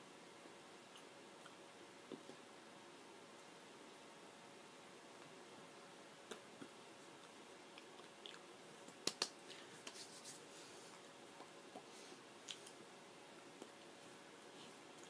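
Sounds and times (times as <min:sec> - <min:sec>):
faint clicks and taps of hands: 0:08.9 - 0:10.3.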